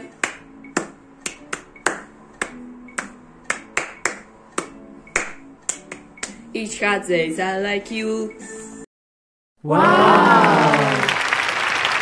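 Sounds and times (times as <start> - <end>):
hand claps: 0.1 - 6.4.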